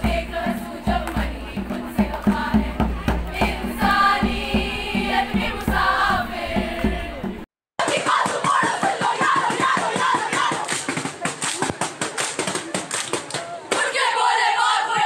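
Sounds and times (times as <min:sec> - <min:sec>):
frame drum beat: 0:00.0 - 0:07.5
group singing in chorus: 0:00.0 - 0:10.7, 0:13.7 - 0:15.0.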